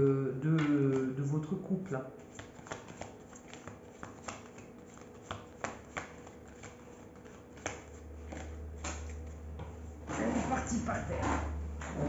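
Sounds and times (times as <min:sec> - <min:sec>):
cards being shuffled: 0:00.6 - 0:09.6.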